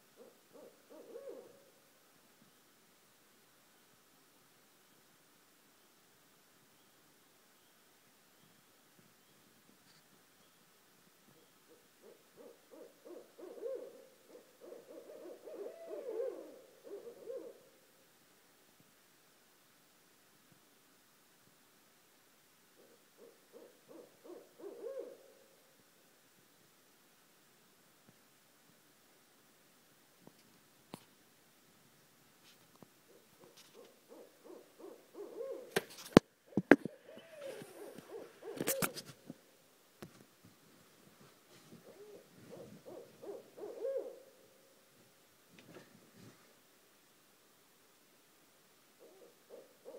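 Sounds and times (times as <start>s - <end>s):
owls hooting: 0.2s - 1.6s, 11.7s - 17.7s, 22.8s - 25.3s, 33.1s - 35.8s, 36.5s - 39.0s, 41.8s - 44.4s, 49.0s - 49.9s.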